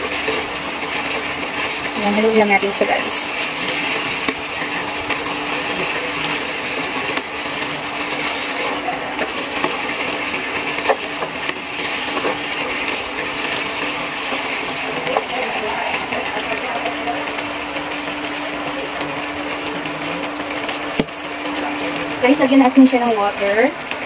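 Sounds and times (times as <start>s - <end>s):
meat sizzling in a pan: 0.0s - 24.0s.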